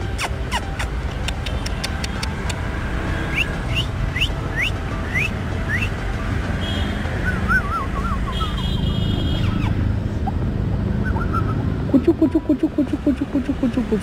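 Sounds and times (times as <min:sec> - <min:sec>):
high chirping calls: 0:03.3 - 0:06.0, 0:06.8 - 0:14.0.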